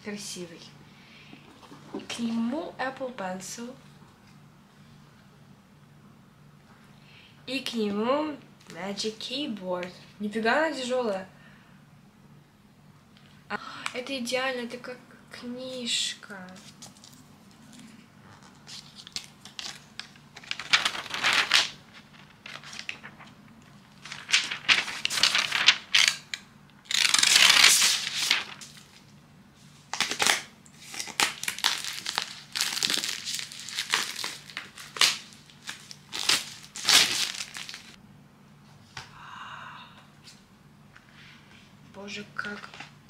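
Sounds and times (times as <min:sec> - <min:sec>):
packaging crinkling and tearing: 0:16.6 - 0:29.1, 0:29.9 - 0:38.0.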